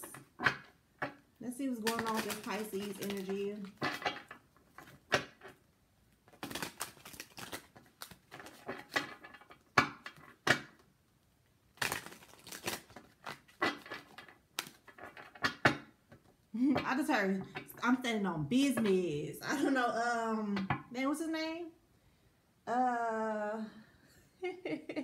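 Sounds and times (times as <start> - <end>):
cards being shuffled: 1.8 - 4.1, 6.2 - 10.6, 11.7 - 15.7.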